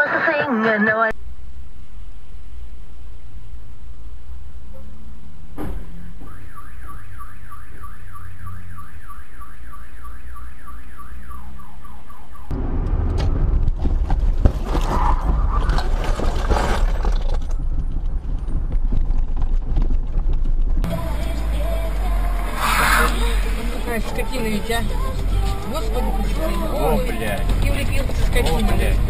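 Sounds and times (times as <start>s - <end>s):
low steady hum: 0.9s - 14.3s, 16.2s - 29.0s
car alarm sweeping tone: 5.9s - 12.5s, 20.9s - 27.0s
loud rumbling noise: 12.5s - 26.7s.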